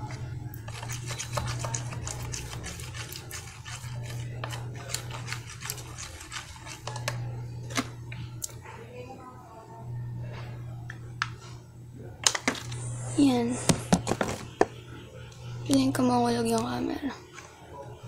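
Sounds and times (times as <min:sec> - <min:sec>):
spoon stirring sticky slime: 0:00.0 - 0:07.2
steady low hum: 0:00.0 - 0:18.0.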